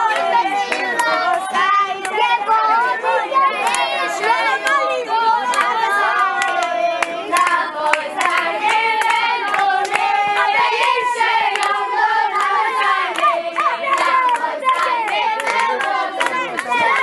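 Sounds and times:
boys singing together: 0.0 - 17.0
hand clapping: 3.6 - 3.9, 5.5 - 5.8, 6.4 - 17.0.

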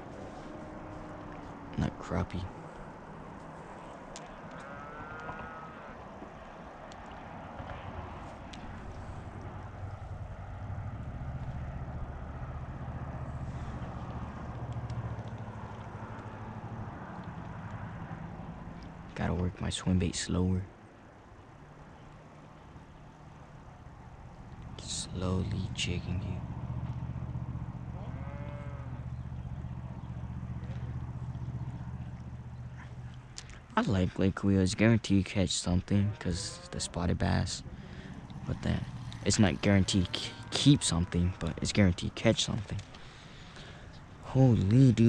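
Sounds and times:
motorboat engine humming: 0.0 - 4.5, 8.3 - 19.2, 20.9 - 34.2, 36.7 - 45.0
faint clicks: 4.1 - 5.5, 13.8 - 16.4, 17.1 - 17.8, 30.6 - 33.7, 42.6 - 44.0
cow mooing: 4.5 - 6.0, 27.9 - 29.1, 35.9 - 37.0, 37.8 - 41.3
steady low drone: 7.9 - 20.4, 22.6 - 45.0.

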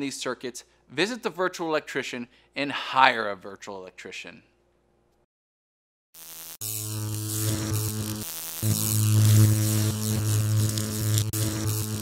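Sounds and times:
electric mains hum: 6.2 - 12.0
crackling static: 6.3 - 12.0.

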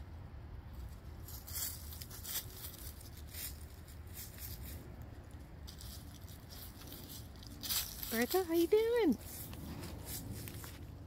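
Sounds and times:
low steady rumble: 0.0 - 11.0
rustles in dry leaves: 0.6 - 11.0.

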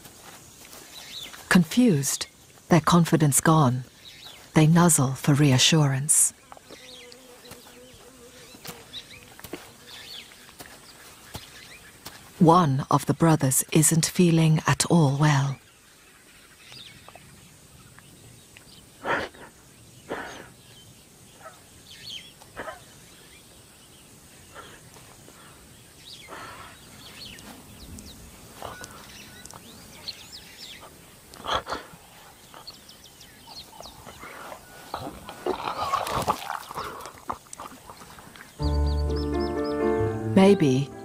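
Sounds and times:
lion retching and heaving: 33.8 - 38.1.

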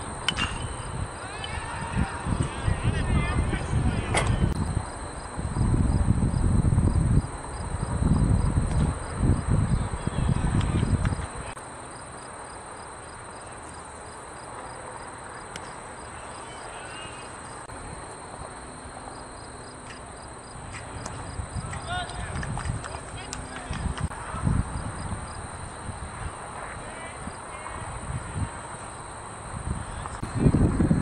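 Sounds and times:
wind rumble on microphone: 0.0 - 11.6, 20.6 - 31.0
insect chorus chirping: 0.0 - 31.0.

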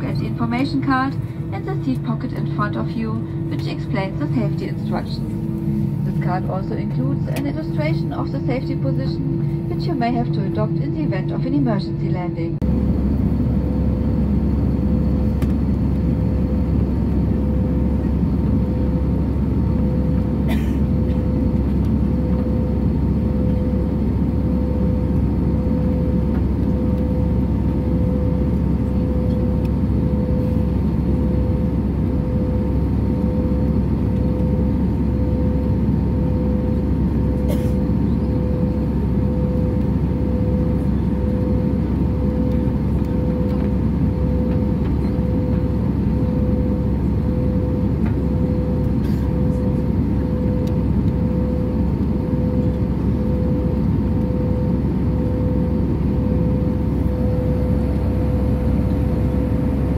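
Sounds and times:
constant tone: 0.0 - 14.3
airliner cabin rumble: 0.0 - 59.9.

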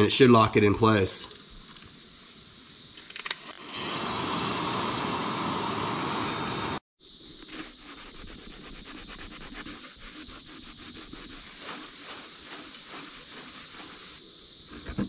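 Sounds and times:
heat gun hissing: 3.3 - 6.8, 7.5 - 15.0
rag rubbing on plastic: 7.4 - 15.0.

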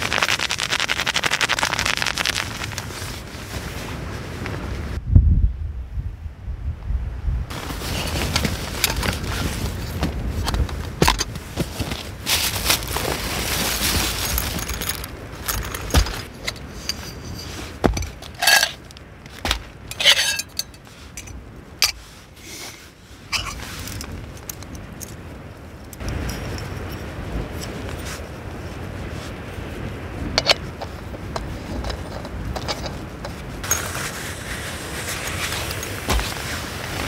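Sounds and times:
rustling and rattling: 0.0 - 3.6, 7.5 - 22.2, 23.3 - 28.1, 30.4 - 37.0
metal clinks and scrapes: 13.6 - 22.1, 22.7 - 25.2, 25.8 - 28.1, 30.4 - 34.0, 35.1 - 36.6.

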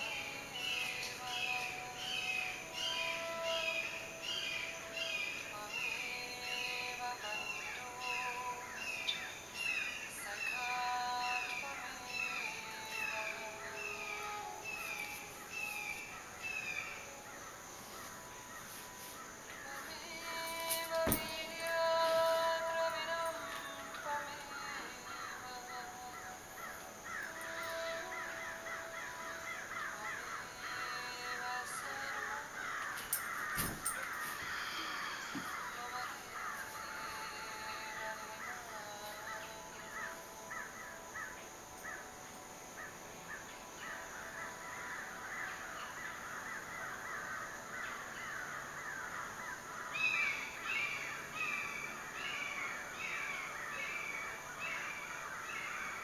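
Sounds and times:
birds chirping: 0.0 - 56.0.

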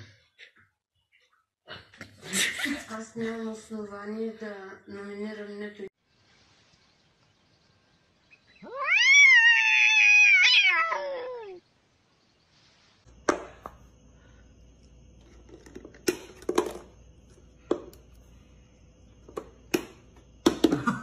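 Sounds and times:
cat meowing: 8.6 - 11.6.

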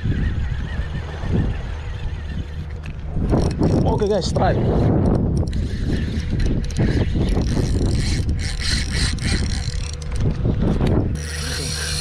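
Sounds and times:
wind rumble on microphone: 0.0 - 12.0
fishing reel clicking: 1.8 - 12.0
steady hum: 5.6 - 12.0.

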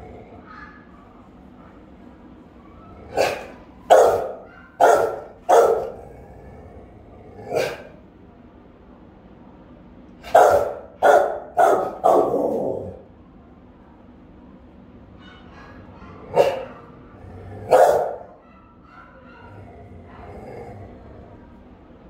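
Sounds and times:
dog barking loudly: 3.0 - 6.1, 7.4 - 8.0, 10.2 - 13.0, 15.2 - 20.4.

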